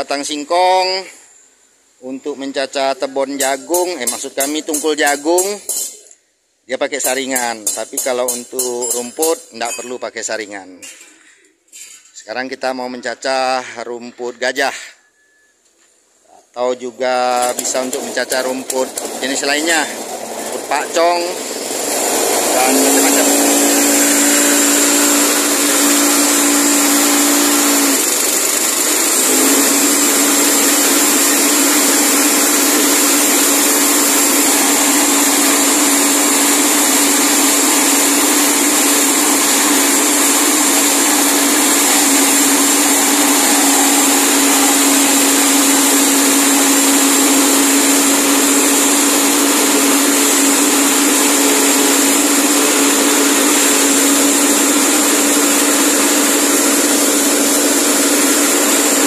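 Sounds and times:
petrol engine running: 0:17.4 - 0:59.0
spinning blades whining: 0:20.7 - 0:36.6, 0:37.2 - 0:59.0.

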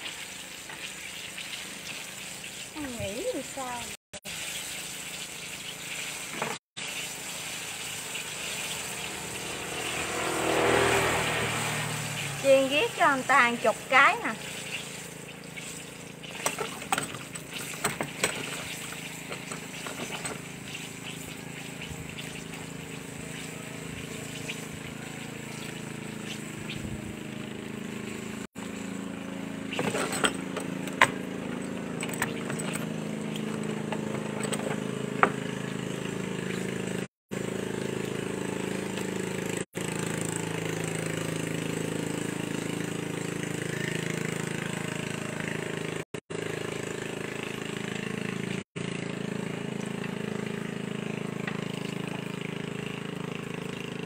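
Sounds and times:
fritters deep-frying in oil: 0:00.0 - 0:34.1
low motor hum: 0:07.1 - 0:54.0.

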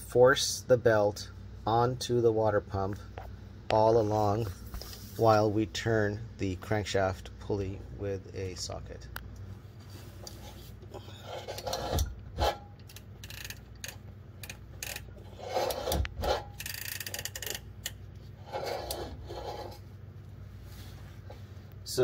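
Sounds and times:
belt rubbing on pulley: 0:10.3 - 0:13.6, 0:14.8 - 0:17.6, 0:18.3 - 0:19.9
ratchet wrench clicks: 0:12.8 - 0:15.1, 0:16.6 - 0:18.0.

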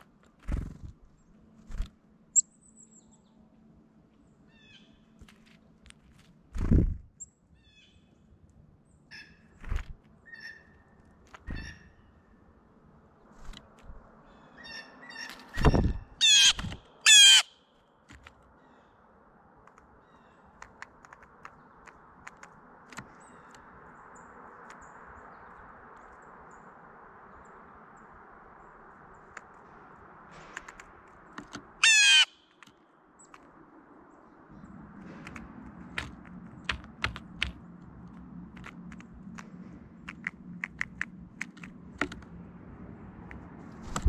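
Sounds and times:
blue jay harsh calls: 0:16.1 - 0:17.6, 0:31.8 - 0:32.6.

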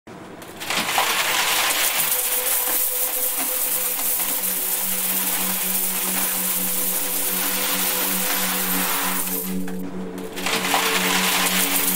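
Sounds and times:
low hum-like tone: 0:02.6 - 0:11.9.

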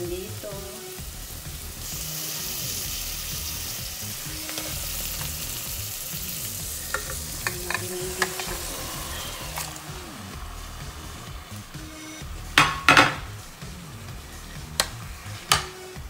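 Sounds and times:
chicken sizzling in a pot: 0:00.0 - 0:16.0
taps against a pot: 0:06.9 - 0:08.4, 0:15.5 - 0:15.8.

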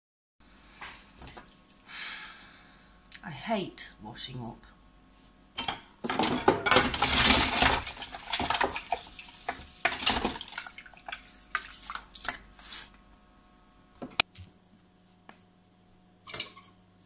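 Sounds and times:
dishes and pans clinking: 0:05.6 - 0:08.9, 0:16.3 - 0:16.8
dish brush scrubbing: 0:06.8 - 0:13.0
splashing water: 0:07.1 - 0:12.5.

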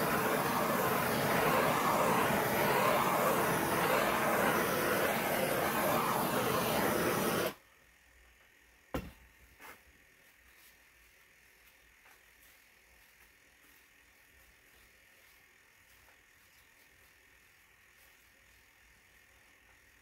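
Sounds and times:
gas torch flame hissing: 0:00.0 - 0:07.6.

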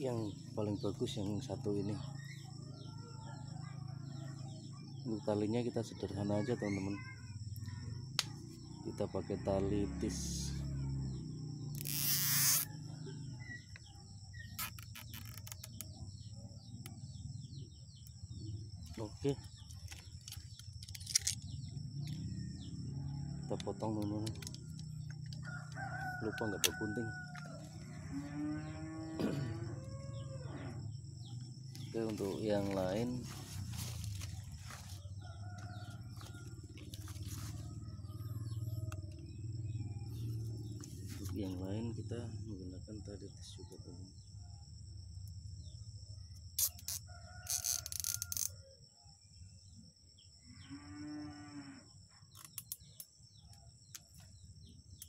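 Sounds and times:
birds chirping: 0:00.0 - 0:48.3
insects droning: 0:00.0 - 0:55.0
cable tie zipping rasp: 0:11.7 - 0:12.7
distant chickens calling: 0:21.2 - 0:42.4.

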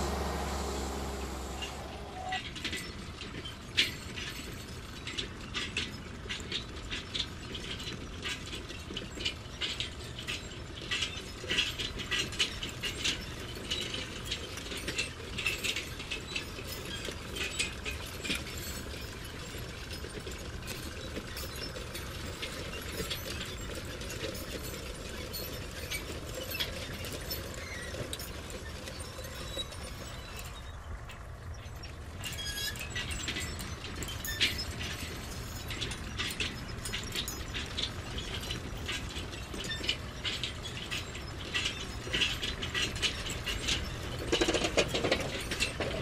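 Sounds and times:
model bulldozer tracks clicking: 0:00.0 - 0:46.0.

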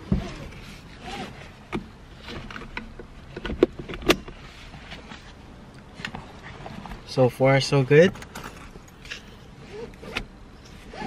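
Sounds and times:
seatbelt hardware clicks and clunks: 0:00.0 - 0:04.4, 0:08.1 - 0:11.0
seatbelt webbing rustling: 0:00.0 - 0:07.1, 0:08.1 - 0:11.0.

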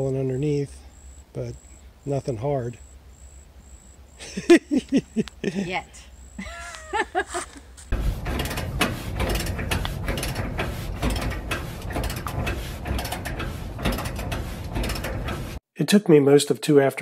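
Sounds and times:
ratchet wrench clicking: 0:08.3 - 0:15.4.

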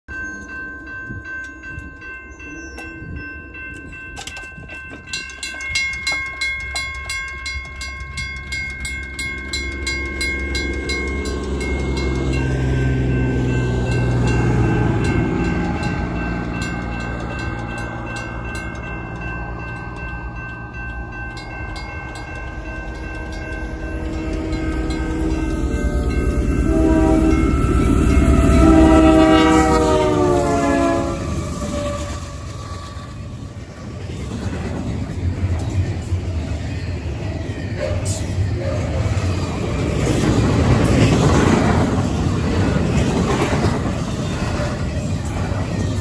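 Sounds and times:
mechanical crossing bell ringing: 0:00.1 - 0:30.0
electronic crossing bell tone: 0:00.1 - 0:32.7
train rumble: 0:00.1 - 0:46.0
locomotive air horn: 0:23.3 - 0:33.0.

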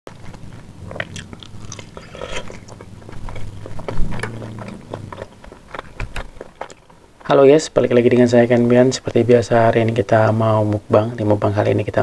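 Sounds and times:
person chewing: 0:00.1 - 0:07.3.

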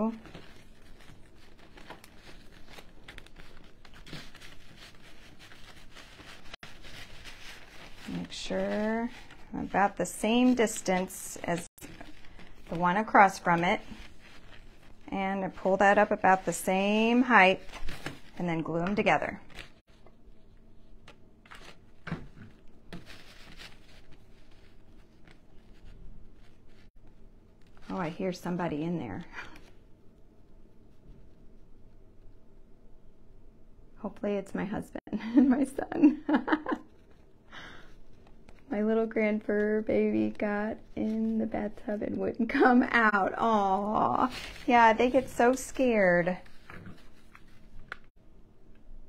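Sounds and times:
twigs and rope rustling: 0:00.0 - 0:28.1.

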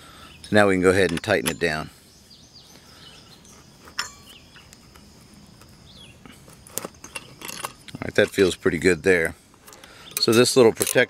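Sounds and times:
faint bird chirps: 0:00.0 - 0:06.4.

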